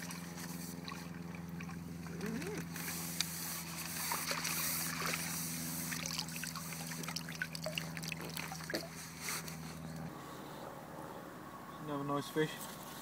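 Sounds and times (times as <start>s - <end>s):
small water splashes: 0.0s - 9.2s
steady low hum: 0.0s - 13.0s
water trickling and dripping: 5.8s - 9.0s.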